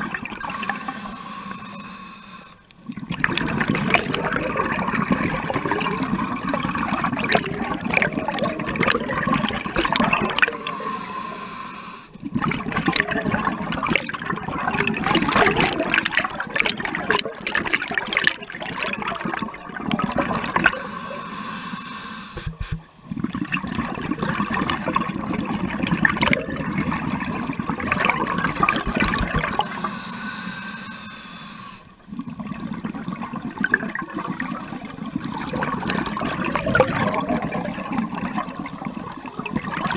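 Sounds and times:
exhaled bubbles underwater: 0.0 - 39.9
regulator hissing inhale: 0.4 - 2.7, 10.4 - 12.2, 20.7 - 22.8, 29.6 - 31.9.

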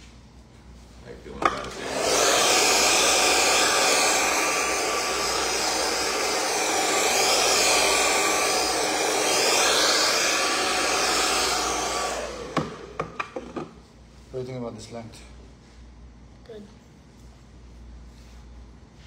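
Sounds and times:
hair dryer blowing: 1.4 - 13.8.

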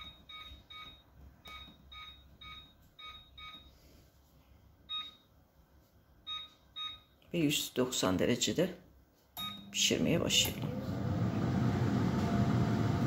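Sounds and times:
air fryer control panel beeps: 9.4 - 9.8.

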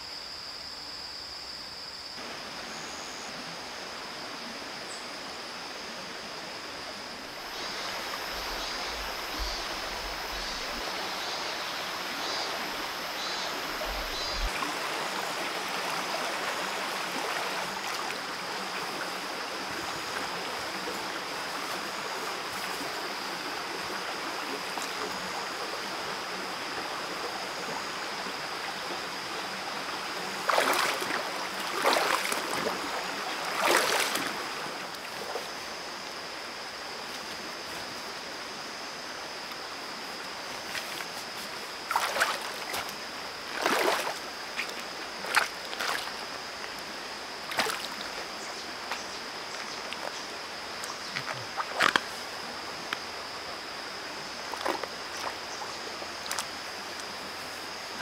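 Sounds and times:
stream running over rocks: 2.2 - 58.0
feet splashing in water: 30.3 - 34.4, 40.7 - 46.3, 47.5 - 48.2, 54.5 - 55.4.

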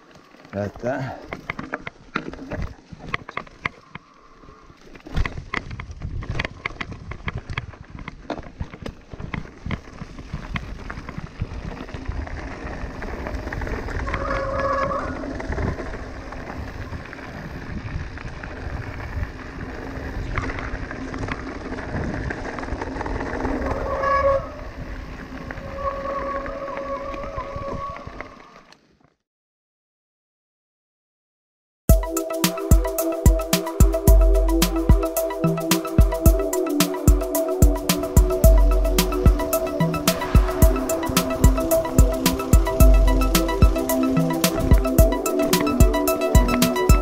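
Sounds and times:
bike rattling over stones: 0.0 - 29.0
tyres rolling on gravel: 0.0 - 29.0, 32.6 - 47.0.

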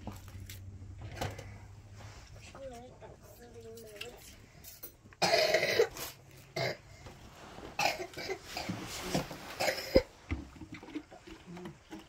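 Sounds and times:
person coughing: 5.2 - 6.8, 7.8 - 10.1.

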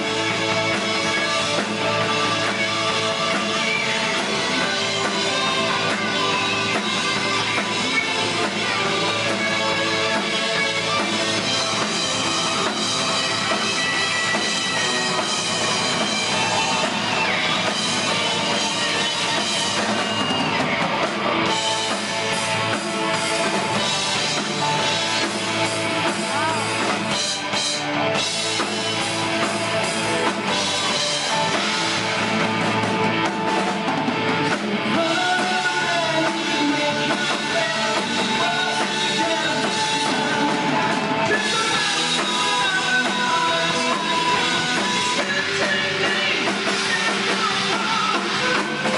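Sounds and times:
live rock band playing: 0.0 - 48.9.

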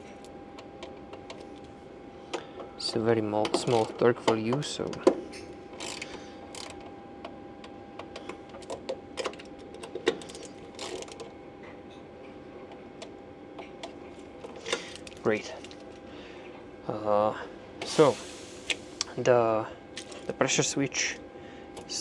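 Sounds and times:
torque wrench clicking: 5.8 - 6.8.

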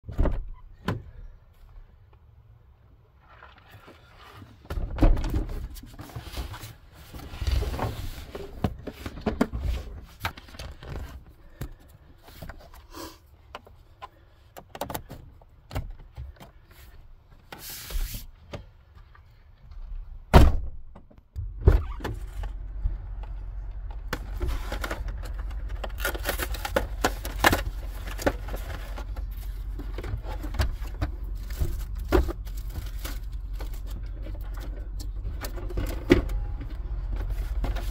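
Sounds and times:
food and cans packed into fridge: 3.2 - 19.6, 21.4 - 37.9.

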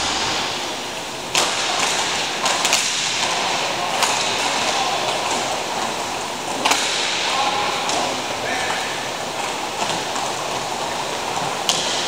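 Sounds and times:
hockey sticks clacking: 1.3 - 12.0.

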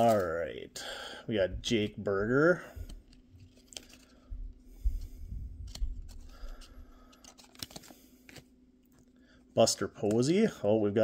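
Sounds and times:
cards sliding and rustling: 0.0 - 0.4, 2.8 - 4.2, 5.0 - 9.1
faint steady hum: 0.0 - 11.0
trading cards clicking: 5.7 - 8.5.

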